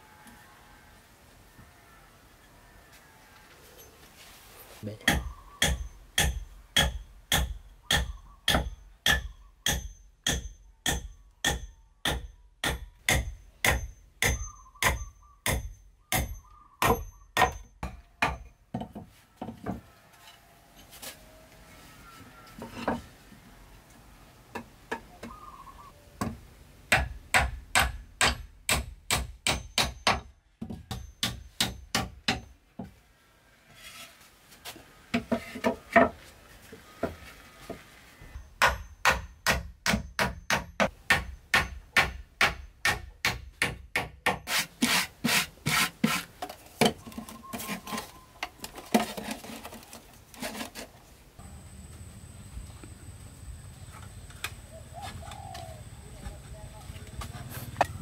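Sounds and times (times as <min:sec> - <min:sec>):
hammer striking wood: 0:05.1 - 0:19.1, 0:26.2 - 0:32.5, 0:38.6 - 0:46.2
faint scraping and knocks: 0:18.8 - 0:23.3, 0:33.6 - 0:38.3, 0:46.0 - 0:51.1.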